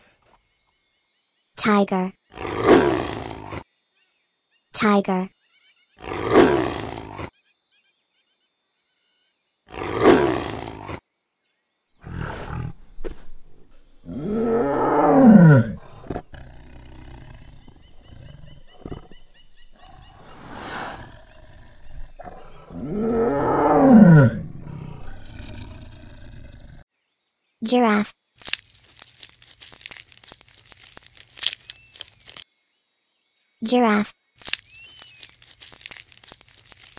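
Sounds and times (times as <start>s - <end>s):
tiger roaring: 2.3s - 3.6s, 6.0s - 7.3s, 9.7s - 11.0s, 12.0s - 26.8s.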